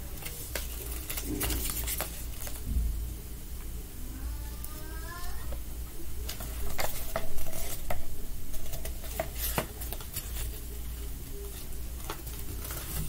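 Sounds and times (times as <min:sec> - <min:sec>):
paper crackling and rustling: 0:00.0 - 0:02.8, 0:06.2 - 0:13.0.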